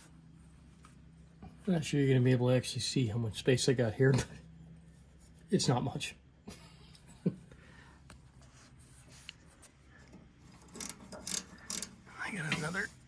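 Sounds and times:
faint clicks and rubbing: 8.1 - 12.8.

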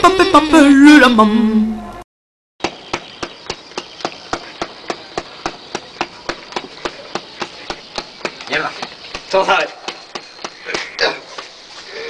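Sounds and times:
rhythmic sharp clicks: 2.6 - 11.5.

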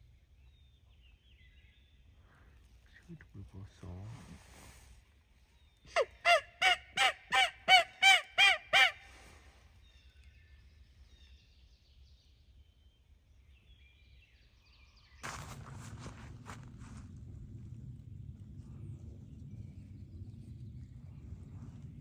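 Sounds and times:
faint songbird chirps: 0.0 - 4.0, 9.4 - 15.6
turkey yelping: 5.9 - 9.0.

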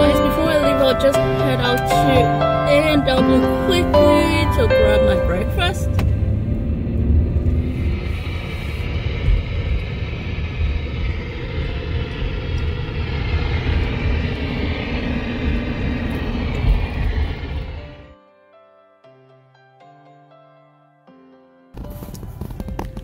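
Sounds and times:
soft background music: 0.0 - 6.5, 17.7 - 23.0
car tyre and engine rumble: 0.0 - 18.1, 21.8 - 23.0.

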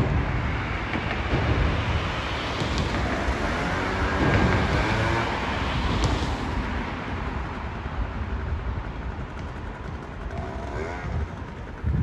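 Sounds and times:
wind buffeting microphone: 0.0 - 12.0
scooter engine: 8.8 - 12.0.

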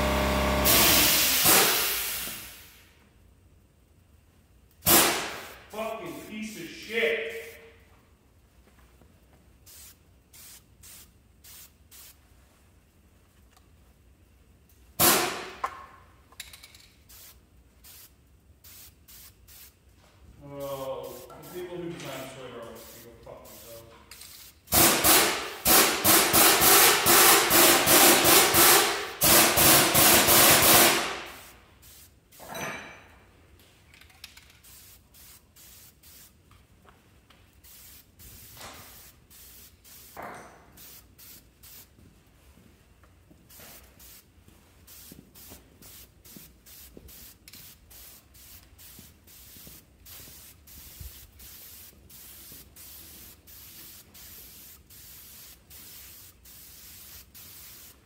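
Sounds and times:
loud rushing hiss: 0.0 - 2.9, 4.9 - 7.6, 24.7 - 32.2
aerosol spray can hisses: 0.7 - 2.8, 9.7 - 12.2, 17.1 - 19.8, 24.7 - 32.2, 34.6 - 36.4, 37.6 - 40.2, 40.8 - 41.9, 43.5 - 44.3, 44.9 - 58.0.

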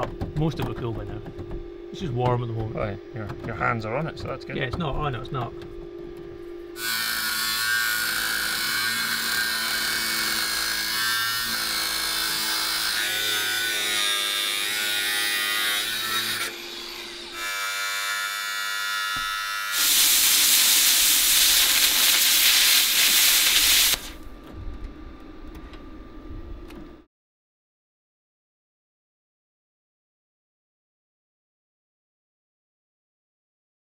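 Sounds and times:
steady hum: 0.0 - 6.8, 19.8 - 27.1
plasma cutter hissing: 19.7 - 24.2.

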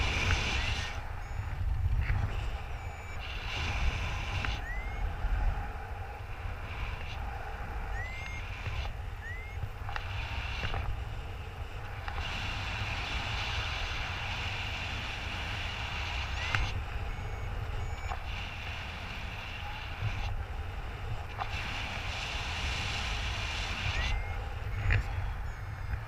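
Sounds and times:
high chirps and beeps: 0.0 - 5.2, 7.9 - 9.7, 16.3 - 18.3, 23.8 - 26.0
wind buffeting microphone: 0.0 - 26.0.

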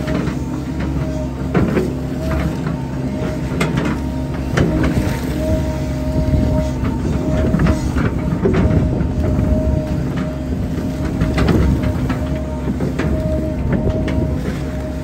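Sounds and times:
diesel engine running: 0.0 - 15.0
excavator bucket clanks and knocks: 0.0 - 15.0
hydraulic whine: 0.0 - 15.0.

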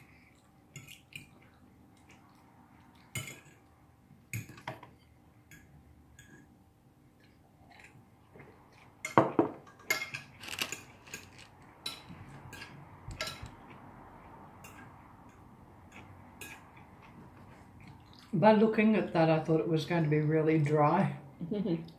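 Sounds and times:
cutlery clinking on plates: 3.1 - 3.6, 9.0 - 13.6.

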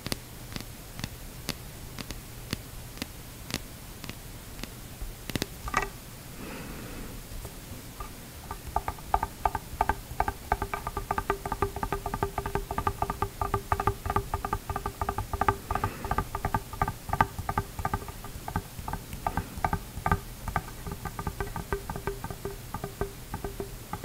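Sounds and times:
fingernails tapping on plastic: 8.0 - 24.0.

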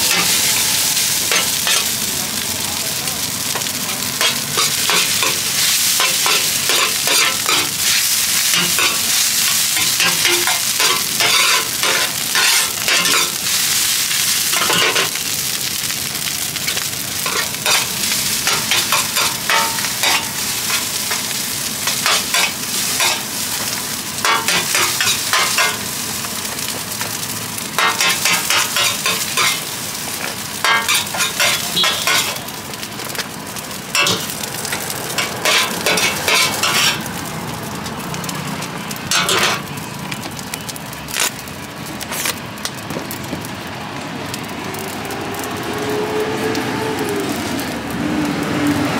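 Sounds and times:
fried rice sizzling in pan: 0.0 - 48.9
metal spatula scraping pan: 35.2 - 37.0.

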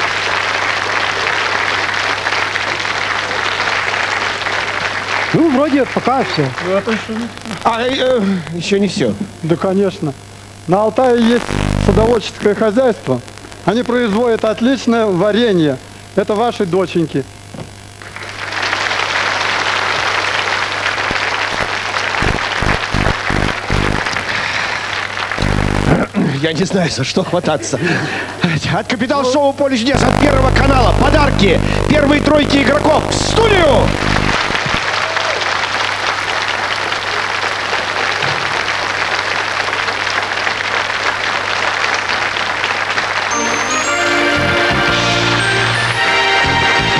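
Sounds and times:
audience applauding: 0.0 - 7.3, 18.1 - 26.1, 33.4 - 43.9
low hum: 11.2 - 12.2, 21.6 - 24.1, 25.4 - 26.0, 30.0 - 34.8
low bass notes: 11.3 - 12.2, 22.2 - 24.0, 25.4 - 26.0, 30.0 - 34.8.

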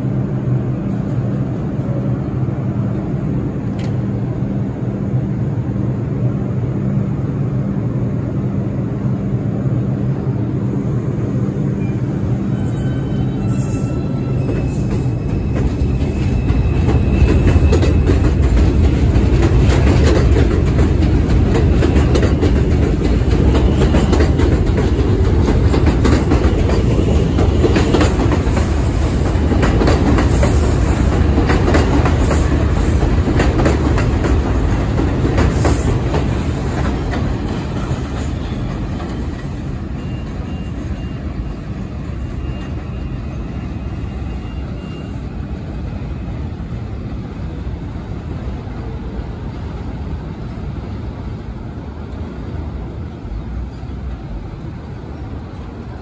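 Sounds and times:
subway train rumbling past: 0.0 - 56.0.

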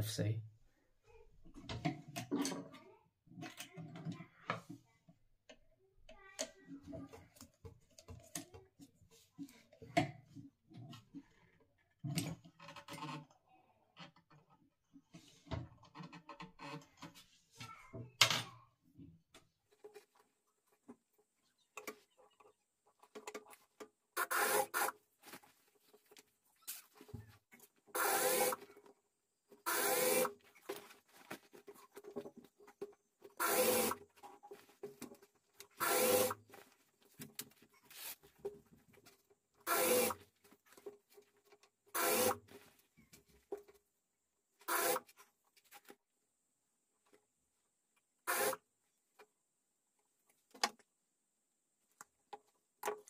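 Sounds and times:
sewing machine stitching: 24.2 - 25.0, 27.9 - 28.7, 29.6 - 30.4, 33.3 - 34.0, 35.7 - 36.5, 39.6 - 40.3, 41.9 - 42.5, 44.7 - 45.1, 48.3 - 48.6.

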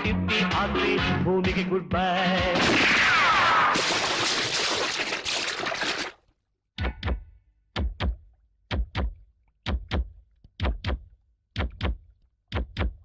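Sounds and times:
music: 0.0 - 2.6, 6.8 - 13.0
paired low thumps: 6.8 - 13.0.

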